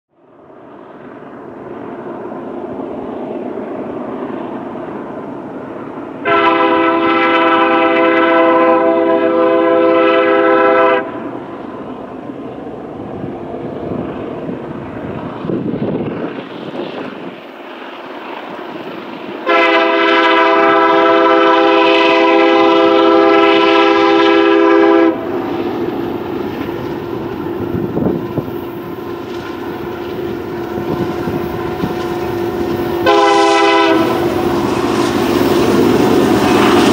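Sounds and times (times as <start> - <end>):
train rumble: 0.3 - 36.9
locomotive air horn blasts: 6.2 - 11.2, 19.4 - 25.2, 33.0 - 34.3.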